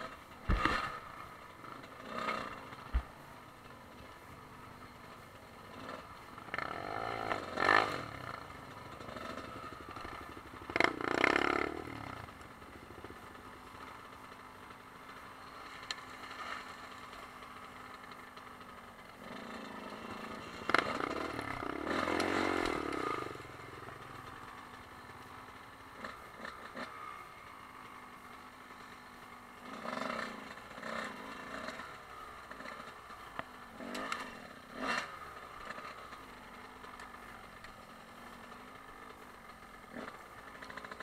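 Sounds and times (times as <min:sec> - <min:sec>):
motorcycle engines revving: 0:00.0 - 0:41.0
sharp knocks and clatter: 0:00.4 - 0:01.0.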